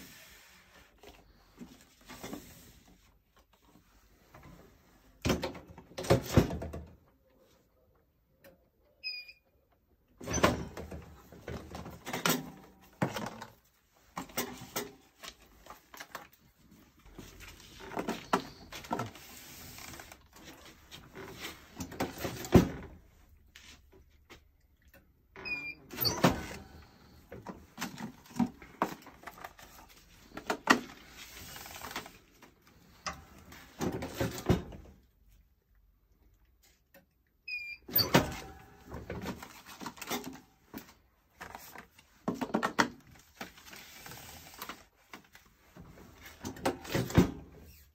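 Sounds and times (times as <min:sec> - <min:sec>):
plastic trays rustling and clattering: 0:10.4 - 0:23.1, 0:26.2 - 0:35.0, 0:38.2 - 0:47.6.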